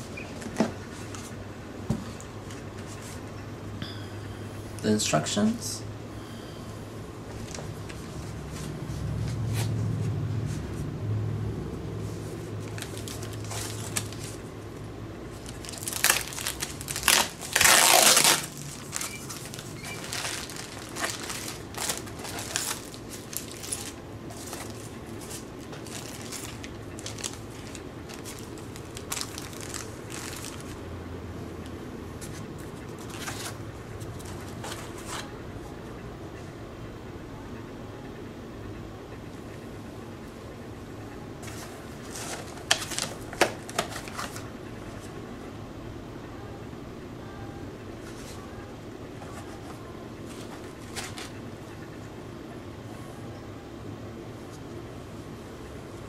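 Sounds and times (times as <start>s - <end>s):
packaging rustling: 12.6s - 14.5s, 15.3s - 30.8s, 32.2s - 35.3s, 41.4s - 44.5s, 50.2s - 51.4s
plastic film crinkling: 12.6s - 14.5s, 15.3s - 30.8s, 41.4s - 44.5s.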